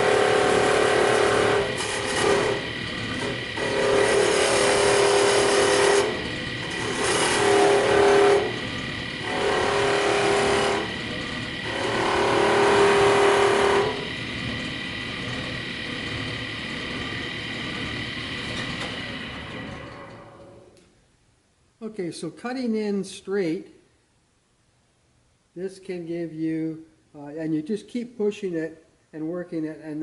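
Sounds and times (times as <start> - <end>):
wood lathe whine: 0.0 - 20.6
parting tool rasping on wood: 3.2 - 8.6.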